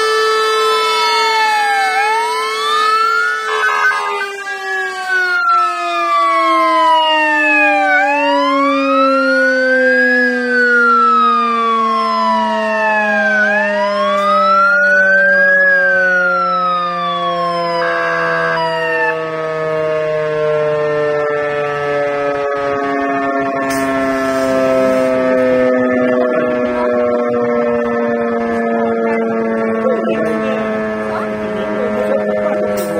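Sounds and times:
fire truck siren wailing: 0.0s - 32.9s
low siren tone winding down: 0.0s - 32.9s.

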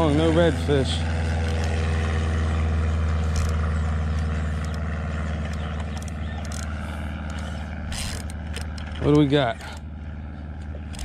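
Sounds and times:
outboard boat motor idling: 0.0s - 11.0s.

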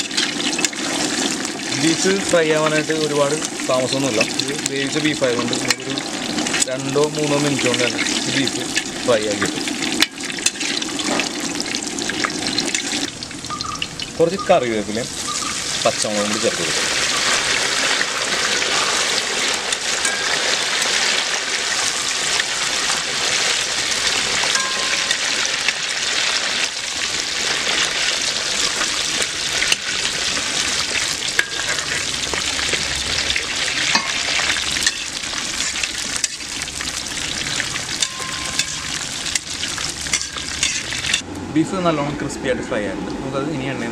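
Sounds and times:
metal spoon scraping a pan: 0.0s - 1.1s, 7.9s - 11.3s, 16.6s - 21.0s, 29.6s - 32.1s, 33.9s - 36.6s, 37.9s - 41.2s
meat sizzling in hot oil: 0.0s - 41.2s.

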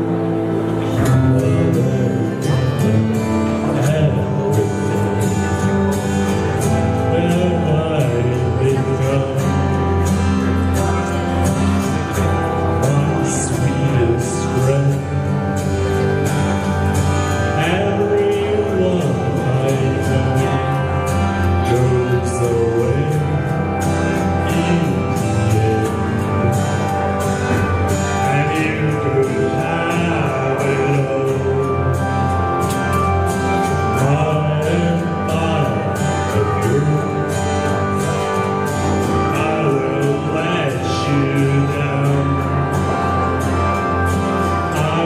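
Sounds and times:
instrumental accompaniment with beat: 0.0s - 45.0s
man singing: 0.0s - 45.0s.

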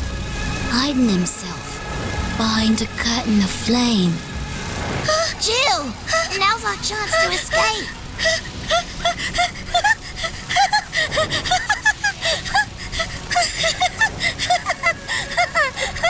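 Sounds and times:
high-pitched manic laughing: 5.1s - 16.0s.

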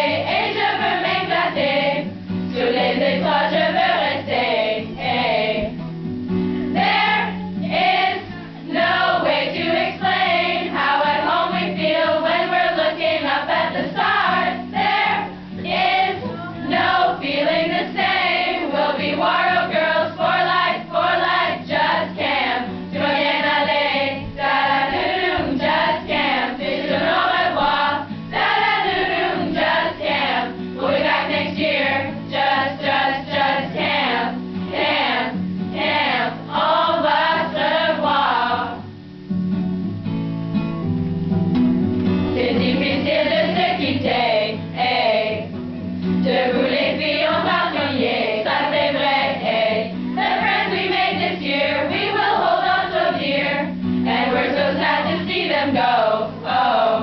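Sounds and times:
group of women singing in unison: 0.0s - 5.8s, 6.7s - 38.8s, 42.4s - 45.6s, 46.2s - 57.0s
low instrumental accompaniment: 39.3s - 43.4s.

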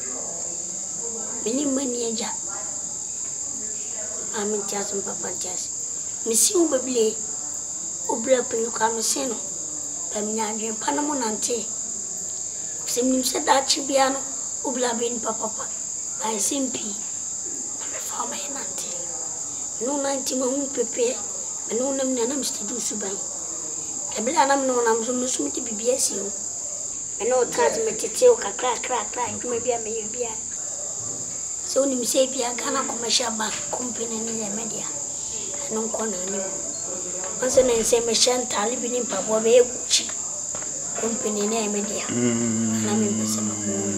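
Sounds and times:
crickets trilling: 0.0s - 43.9s
people talking: 1.4s - 2.6s, 4.3s - 5.7s, 6.3s - 7.2s, 8.1s - 9.5s, 10.2s - 11.7s, 12.9s - 17.0s, 19.8s - 23.3s, 24.1s - 26.4s, 27.2s - 30.4s, 31.7s - 36.6s, 37.4s - 40.2s, 41.0s - 43.9s
child crying: 42.1s - 43.9s.

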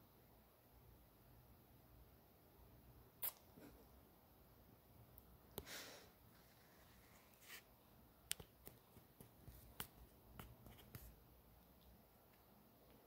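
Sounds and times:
soft rustle: 6.3s - 7.9s.

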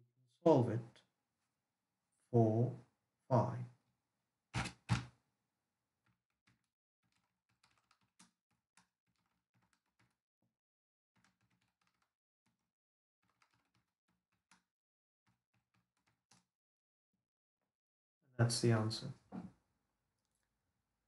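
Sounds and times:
faint keyboard typing: 6.5s - 10.2s, 11.2s - 12.6s, 13.2s - 14.6s.

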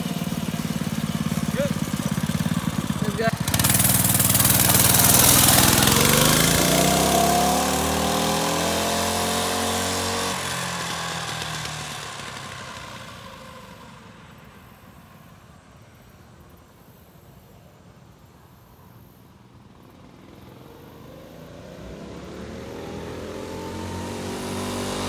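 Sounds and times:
mini bike engine revving: 0.0s - 14.4s, 20.0s - 25.0s.

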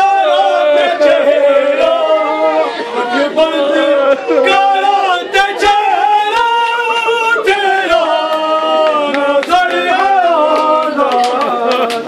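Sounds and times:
person singing unaccompanied lament: 0.0s - 12.0s.

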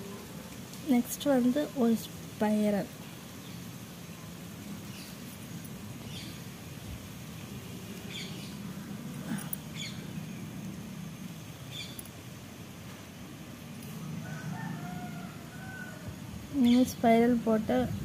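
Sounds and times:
low steady hum: 0.0s - 18.0s
birds chirping: 2.6s - 6.8s, 7.4s - 12.2s, 16.6s - 17.4s.

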